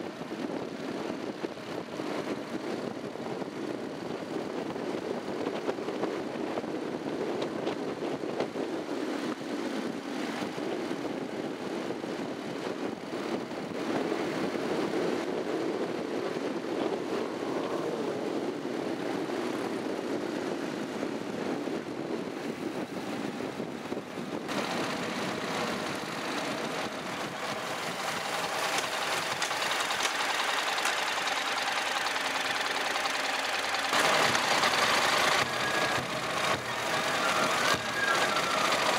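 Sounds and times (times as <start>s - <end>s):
wind and road noise: 0.0s - 38.9s
motorcycle engine running: 23.9s - 38.9s.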